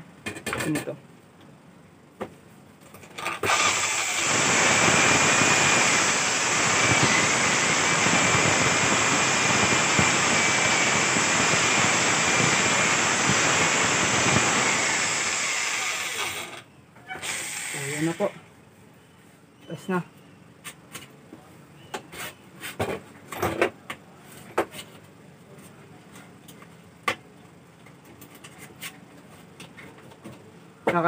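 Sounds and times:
electric drill boring into wood: 3.3s - 16.6s, 17.2s - 18.3s.

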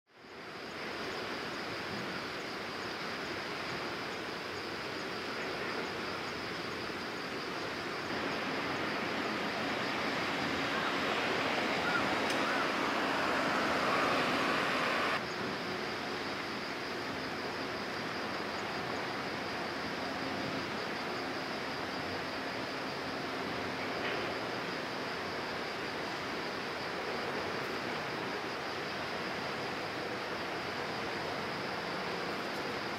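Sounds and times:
wind: 0.1s - 32.9s
water noise: 7.6s - 15.2s.

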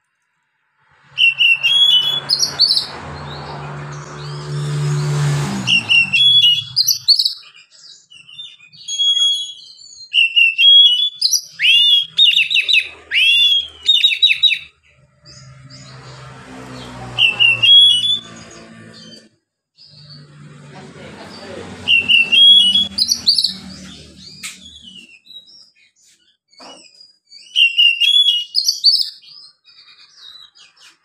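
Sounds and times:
bird singing whistled phrases: 1.2s - 2.9s, 5.7s - 14.7s, 17.2s - 18.3s, 21.9s - 23.8s, 26.9s - 30.0s.

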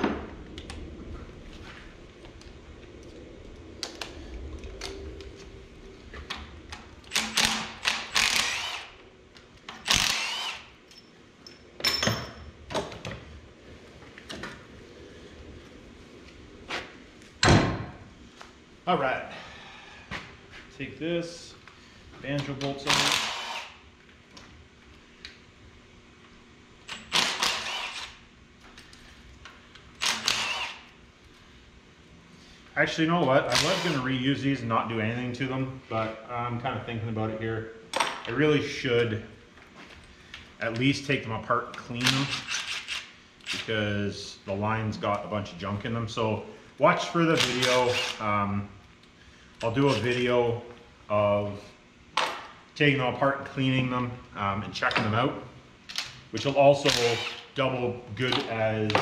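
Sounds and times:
power ratchet running: 7.0s - 9.0s, 9.8s - 10.7s, 22.9s - 23.8s, 26.9s - 28.2s, 30.0s - 30.9s, 42.2s - 43.6s, 47.4s - 48.2s, 56.9s - 57.5s
metal tools clinking: 10.9s - 12.5s.

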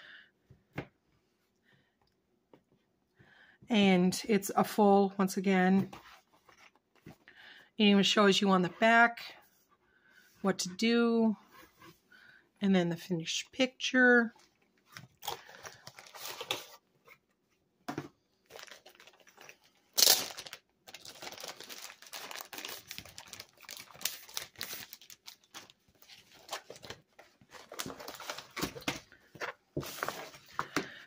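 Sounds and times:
plastic film crinkling: 15.2s - 16.8s, 18.5s - 29.1s.

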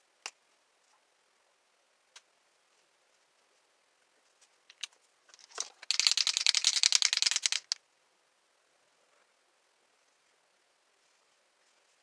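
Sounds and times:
marker rattling when shaken: 4.8s - 7.8s.

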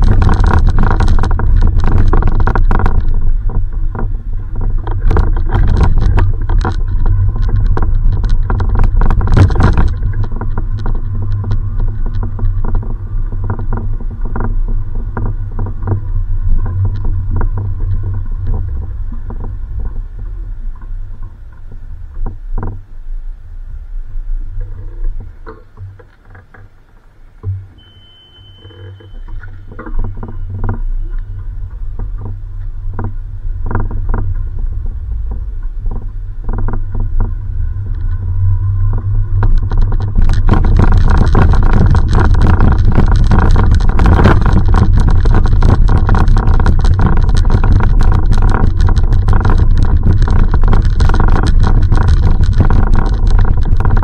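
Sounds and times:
microphone rumble and rustling: 0.0s - 54.0s
short high beep: 27.8s - 29.7s.

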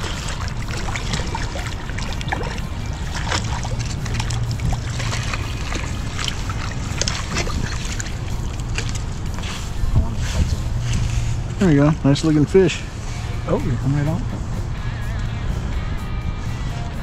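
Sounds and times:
fish splashing and thrashing: 0.0s - 11.7s
wind rumble on microphone: 0.0s - 17.0s.

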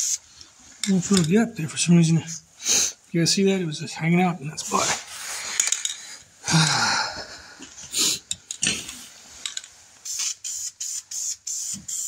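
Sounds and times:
spray paint can hissing: 0.0s - 0.2s, 9.4s - 12.0s.

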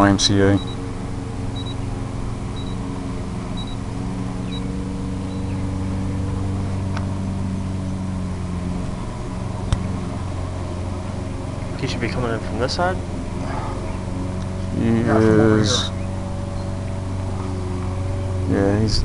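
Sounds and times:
low engine-like hum: 0.0s - 19.0s
short high beeps: 1.6s - 1.8s, 2.6s - 2.8s, 3.6s - 3.8s.

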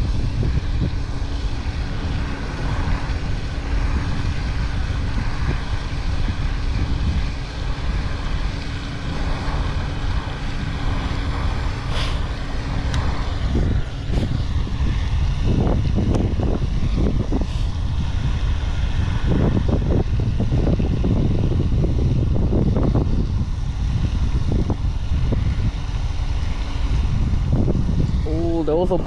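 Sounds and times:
wind buffeting microphone: 0.0s - 29.0s.

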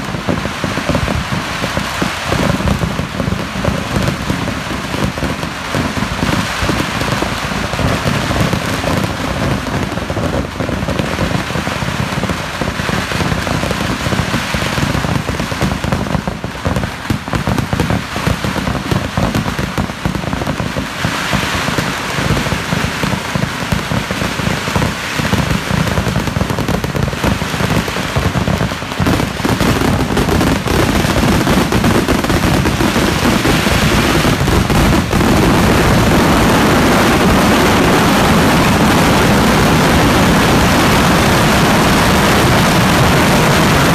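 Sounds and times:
firecracker bangs and crackling: 0.0s - 43.9s.

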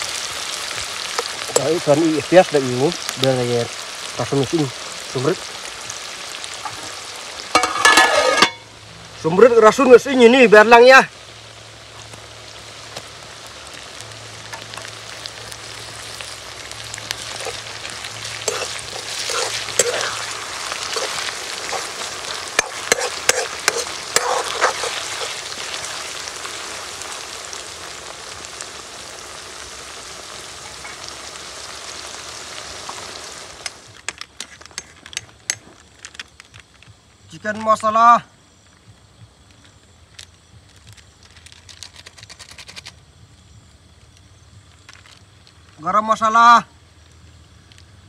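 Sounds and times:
onions sizzling in hot oil: 0.0s - 41.6s
steel spoon scraping a pan: 7.5s - 8.7s, 17.2s - 26.0s.

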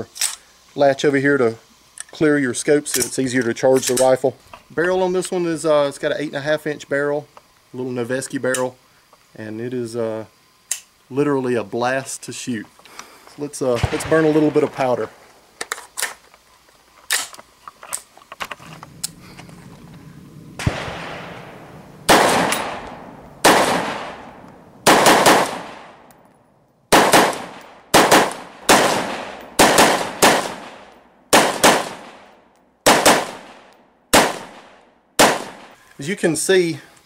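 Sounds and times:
rifle gunshots with echo: 13.7s - 15.2s, 20.6s - 26.0s, 26.9s - 35.8s.

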